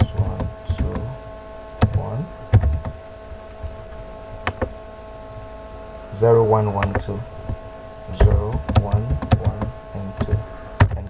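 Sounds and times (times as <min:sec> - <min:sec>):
steady electrical hum: 0:00.0 - 0:11.0
keystrokes on computer keyboard: 0:01.8 - 0:03.0, 0:08.2 - 0:11.0.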